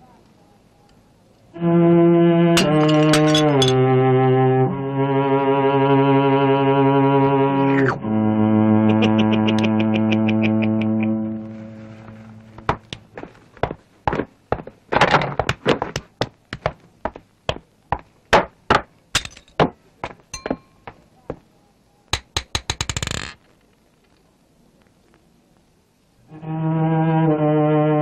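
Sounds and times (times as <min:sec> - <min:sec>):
held musical tone: 0:01.6 - 0:12.9
sharp knocks and clinks: 0:02.6 - 0:03.8, 0:19.2 - 0:21.1.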